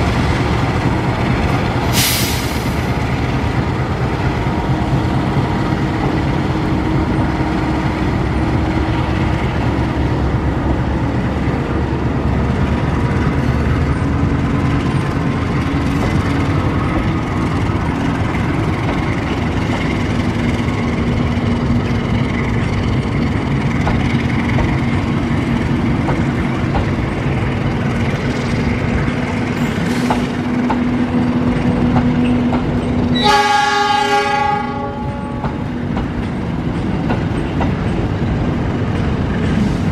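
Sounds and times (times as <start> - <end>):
train wheels rumbling on rails: 0.0 - 39.9
train horn blast: 33.1 - 35.6.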